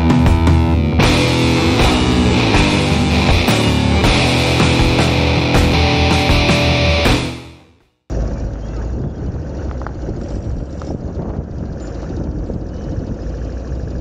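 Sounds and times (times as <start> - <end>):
background music: 0.0 - 7.6
wind buffeting microphone: 8.3 - 14.0.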